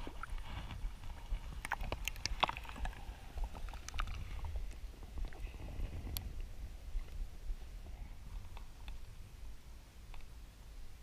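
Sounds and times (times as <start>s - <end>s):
water sloshing and splashing: 0.0s - 6.0s.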